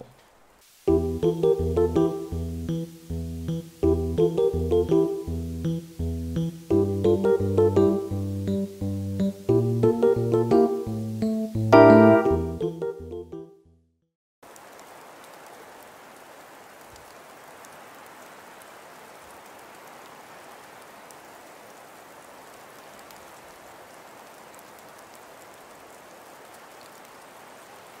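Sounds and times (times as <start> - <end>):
steady hiss with faint ticks: 0.0 - 13.3, 14.4 - 28.0
keyboard music: 0.9 - 13.6.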